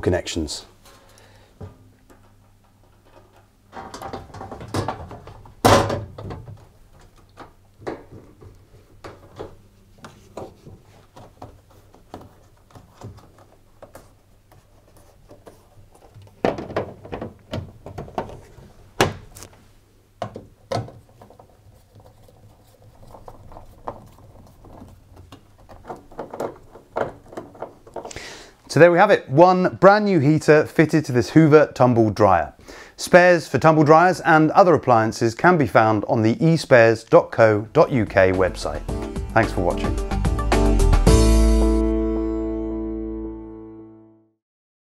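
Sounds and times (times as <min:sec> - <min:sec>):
plastic panel knocking and clicking: 0:16.1 - 0:19.3, 0:23.2 - 0:28.2.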